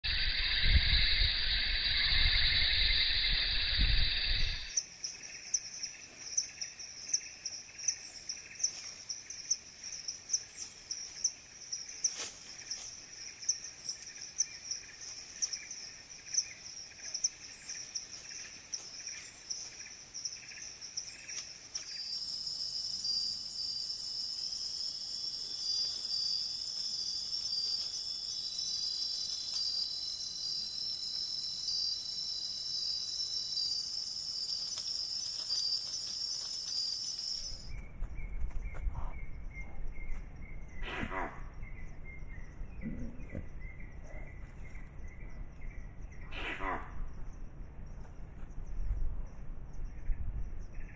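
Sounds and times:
high-pitched insect chirping: 0.0 - 37.8
continuous cricket trill: 0.0 - 50.9
high insect buzz: 0.1 - 37.7
low rumble: 37.5 - 50.9.

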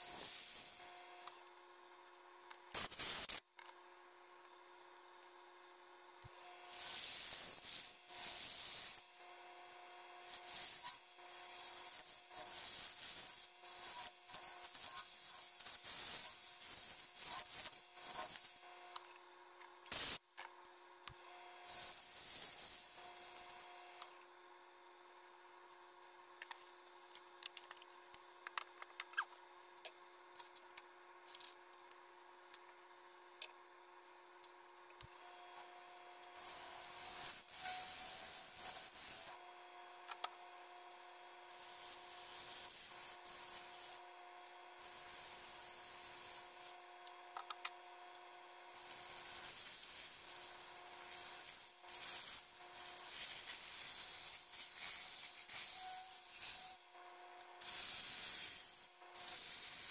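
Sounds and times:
lathe tool scraping wood: 6.4 - 18.7, 36.4 - 39.5, 48.7 - 56.8.

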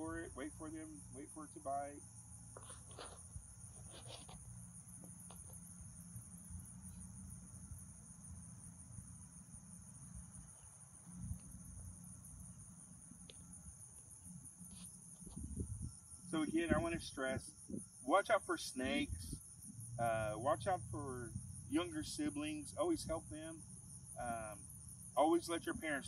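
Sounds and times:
insect chorus chirring: 0.0 - 26.0
wind rumble on microphone: 15.2 - 18.0, 19.0 - 19.5.

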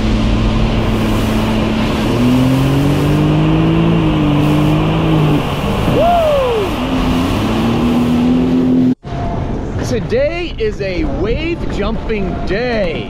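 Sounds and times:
watercraft engine running hard: 0.0 - 9.0
wind: 0.0 - 13.0
rushing water: 0.2 - 9.0.

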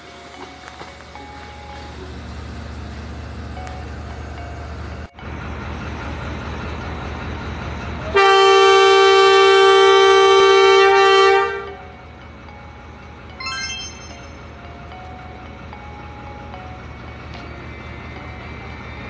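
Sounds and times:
diesel engine rumble: 0.1 - 9.9
locomotive horn blast: 8.1 - 11.8
high chime notes: 13.4 - 14.6.

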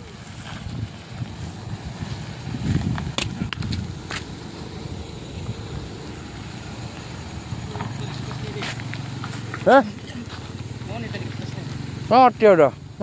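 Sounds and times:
car engine and tyres rumbling: 0.0 - 13.0
stones clicking under tyres: 0.4 - 5.6, 6.9 - 12.1.

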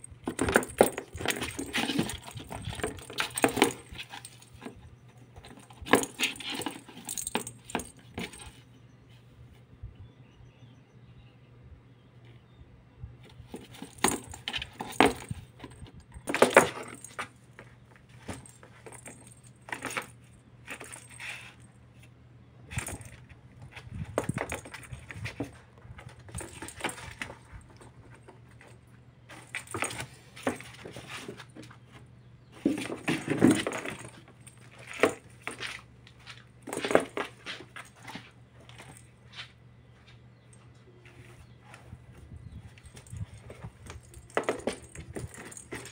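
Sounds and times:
plastic ball rattling and rolling: 0.0 - 8.4, 13.5 - 21.2.

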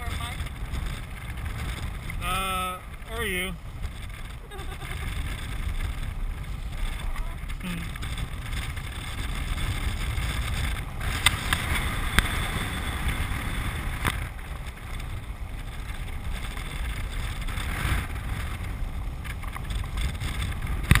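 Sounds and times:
steady rolling noise: 0.0 - 21.0
wind rushing over microphone: 0.0 - 21.0.

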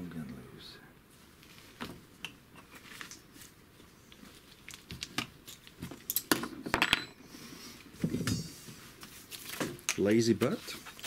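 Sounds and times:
small tools clicking and clinking: 4.6 - 7.2.

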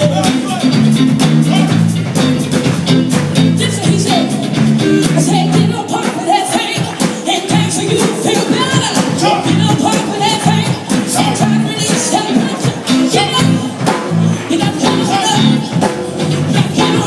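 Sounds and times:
live band playing upbeat song: 0.0 - 17.0
people singing: 3.6 - 17.0.

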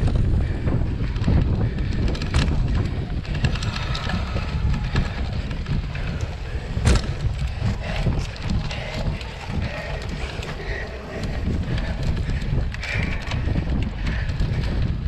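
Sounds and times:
bike and tyres rattling: 0.0 - 15.0
wind buffeting microphone: 0.0 - 15.0.

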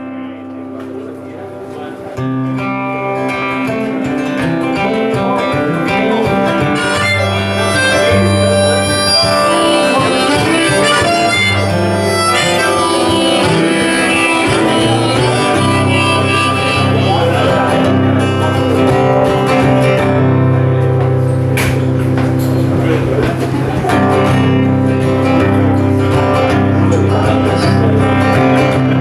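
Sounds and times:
strummed acoustic guitar: 0.0 - 29.0
harmonica melody: 2.8 - 22.0.

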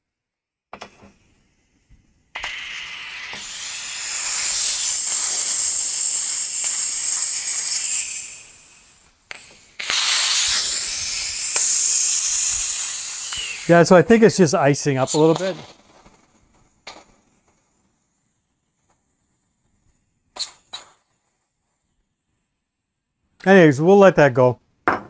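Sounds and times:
compressed air hissing from valve: 2.3 - 13.9.

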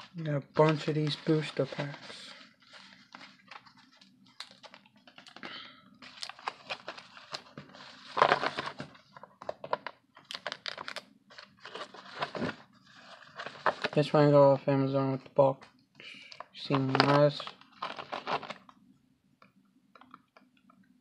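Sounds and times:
plastic blister packs clicking and crinkling: 4.3 - 7.5, 8.1 - 12.5, 16.3 - 18.7.

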